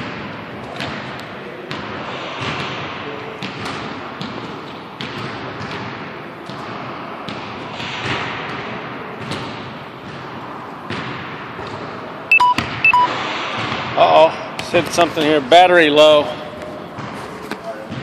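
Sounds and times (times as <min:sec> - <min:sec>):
ball bouncing in gym: 0:00.0 - 0:18.0
short electronic beeps: 0:12.3 - 0:13.2.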